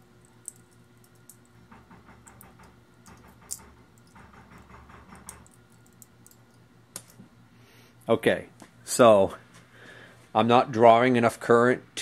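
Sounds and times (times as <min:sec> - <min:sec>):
electrical crackling and clicks: 0:00.1 - 0:04.3, 0:05.1 - 0:07.2.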